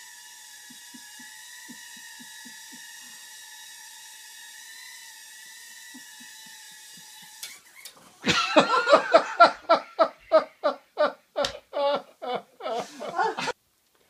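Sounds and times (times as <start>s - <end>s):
quadcopter motors whining: 0.0s - 8.0s
person laughing loudly: 0.6s - 3.2s, 5.9s - 7.4s, 8.2s - 13.6s.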